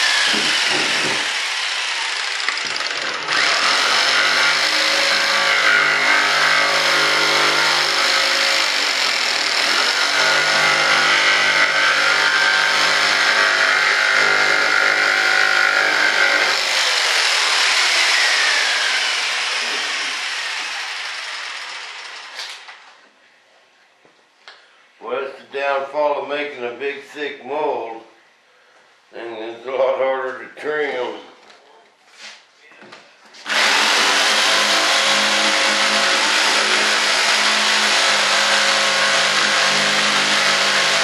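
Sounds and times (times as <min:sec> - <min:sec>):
jigsaw cutting fibreglass: 0:00.0 - 0:22.6, 0:33.5 - 0:41.0.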